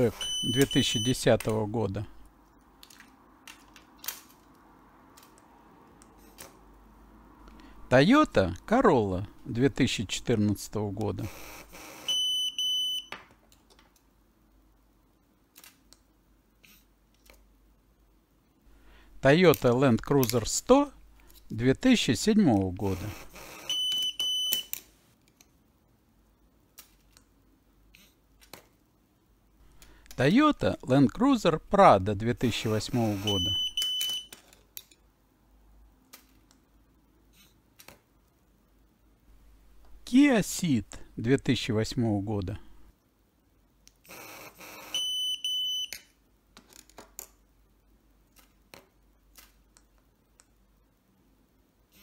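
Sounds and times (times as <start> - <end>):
short high beeps: 0.0 - 1.2, 33.0 - 34.3.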